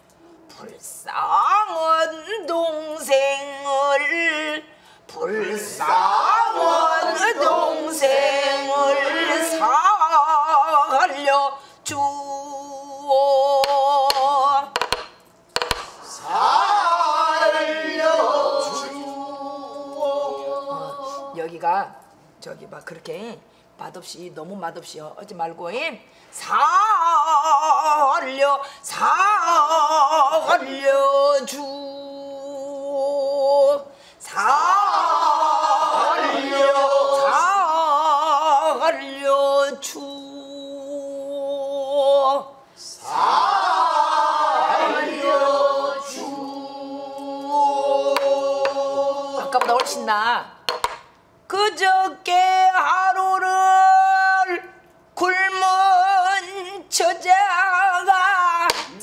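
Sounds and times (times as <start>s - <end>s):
woman singing with vibrato: 1.1s - 15.2s, 16.8s - 21.5s, 26.4s - 43.1s, 44.1s - 50.7s, 51.5s - 59.0s
group of voices singing: 5.1s - 9.9s, 15.6s - 21.3s, 34.3s - 39.2s, 42.8s - 50.1s
stick striking barrel drum: 13.6s - 16.0s, 49.6s - 50.0s, 50.7s - 51.1s, 58.7s - 59.0s.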